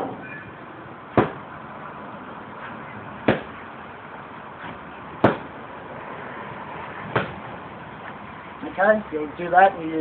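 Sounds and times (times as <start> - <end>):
fist punching a bag: 1.2 - 1.4, 3.3 - 3.5, 5.2 - 5.5.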